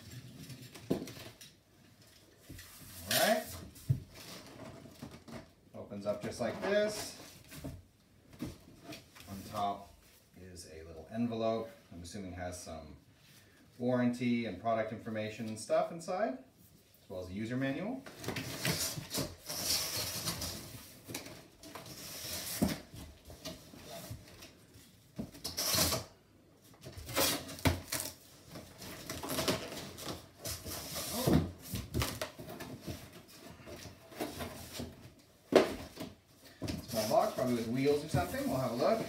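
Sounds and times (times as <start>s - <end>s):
cardboard rustling and scraping: 18.1s - 26.1s, 26.8s - 39.0s
plastic wrapping rustling: 26.8s - 39.0s.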